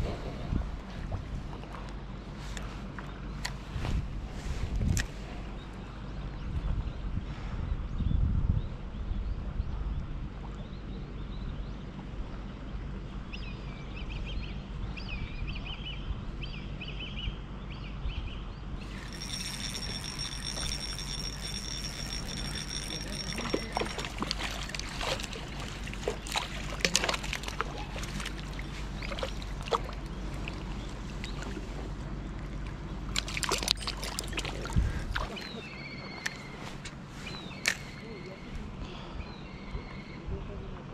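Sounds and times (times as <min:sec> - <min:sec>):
low background hum: 0:08.8 - 0:40.9
water trickling and sloshing: 0:18.8 - 0:37.9.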